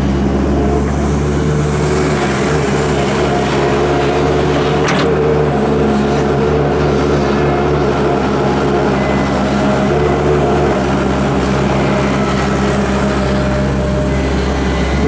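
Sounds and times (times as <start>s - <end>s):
excavator diesel engine running: 0.0s - 15.0s
excavator bucket digging soil: 3.4s - 6.0s.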